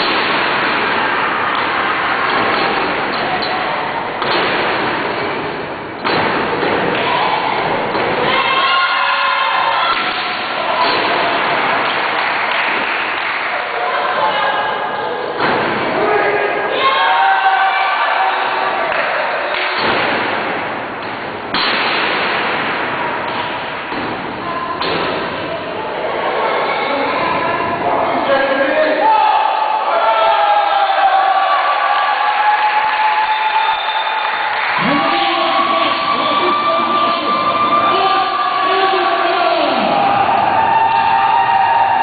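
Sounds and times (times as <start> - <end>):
audience applauding: 11.4 - 13.8, 31.8 - 36.9.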